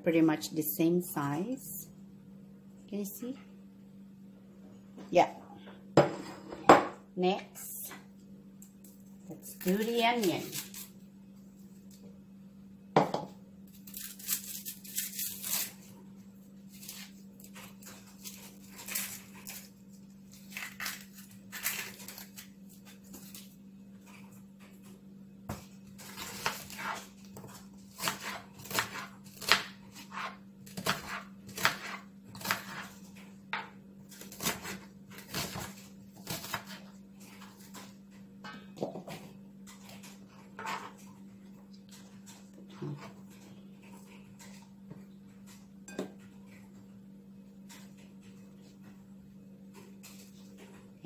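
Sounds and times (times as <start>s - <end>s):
onion skin crackling and tearing: 9.4s - 10.9s, 13.7s - 15.9s, 16.7s - 23.6s.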